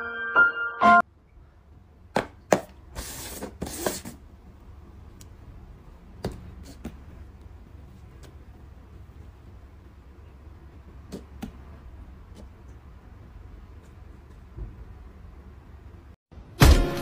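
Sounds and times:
piano and glockenspiel melody: 0.0 - 1.0.

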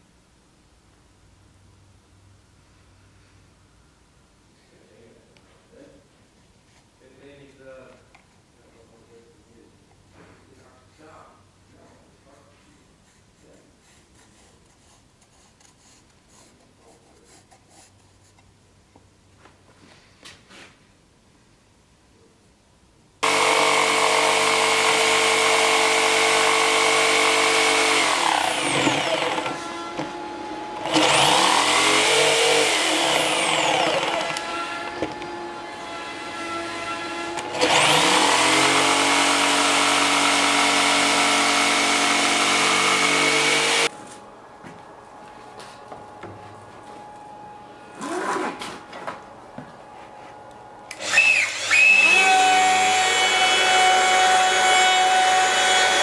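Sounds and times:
jigsaw sawing wood: 23.2 - 43.9, 48.0 - 48.6, 50.9 - 56.0
router whining: 23.2 - 44.2, 47.0 - 49.6, 50.8 - 56.0.

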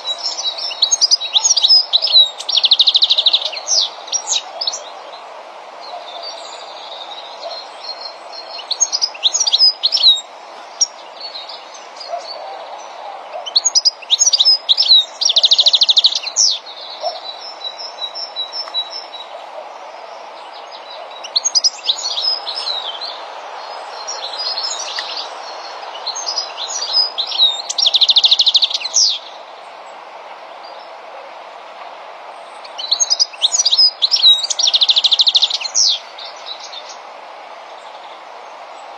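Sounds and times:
steady background noise: 0.0 - 38.9
finches twittering: 5.8 - 29.4, 32.4 - 37.0.

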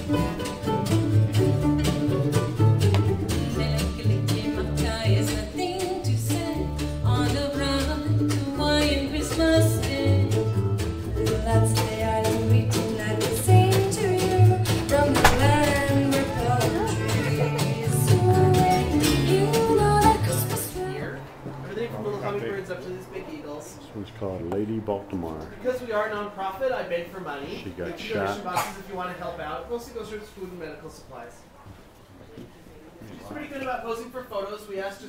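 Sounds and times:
upright bass: 0.0 - 20.9
acoustic guitars strummed: 0.0 - 21.4
person singing: 11.2 - 21.2.

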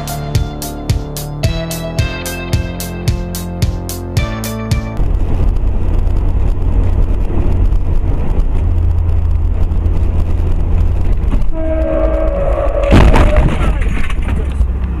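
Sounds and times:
car engine and road noise: 0.0 - 15.0
car horn: 11.5 - 13.4.

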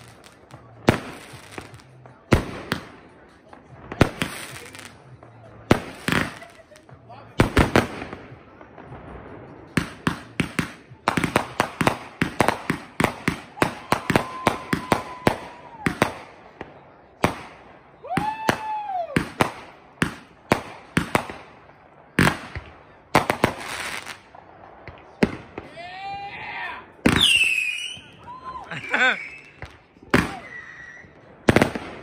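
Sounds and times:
fireworks bangs: 0.0 - 32.0
people whooping: 13.5 - 16.2, 17.9 - 19.4, 25.7 - 31.3.

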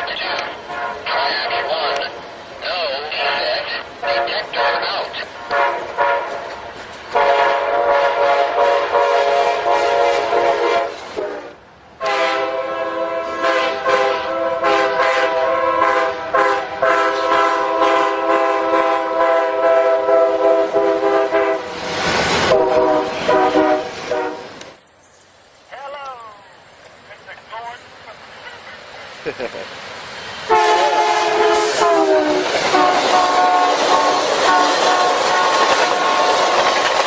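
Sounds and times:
locomotive air horn chord: 0.6 - 2.0, 3.2 - 21.7, 22.4 - 24.5, 30.5 - 36.6.

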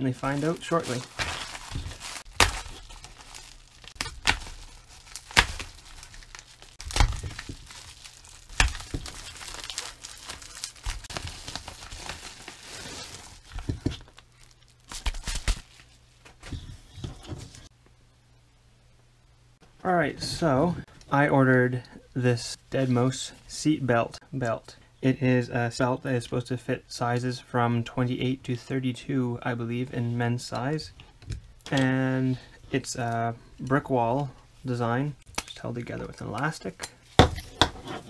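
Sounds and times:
plastic mailer tearing and crinkling: 0.1 - 15.9
sharp crackles and knocks: 0.8 - 12.2, 13.0 - 14.2.

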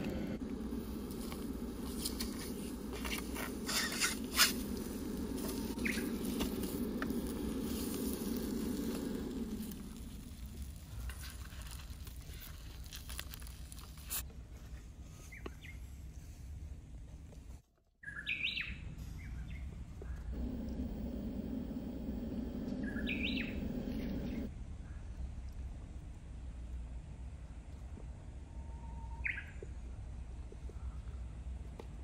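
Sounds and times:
eggs sizzling on hot plate: 0.7 - 11.2.

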